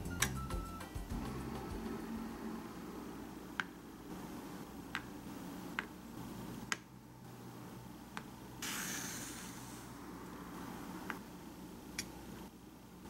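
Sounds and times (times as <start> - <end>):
brief hiss: 8.6 - 10.0.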